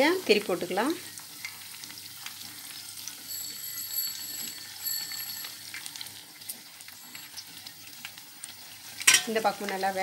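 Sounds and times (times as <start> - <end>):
food sizzling in hot oil: 0.0 - 10.0
high steady ringing tones: 3.0 - 8.0.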